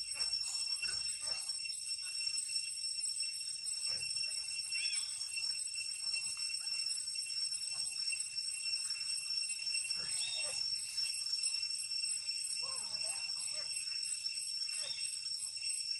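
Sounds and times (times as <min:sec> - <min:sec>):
shrill insect drone: 0:00.0 - 0:15.9.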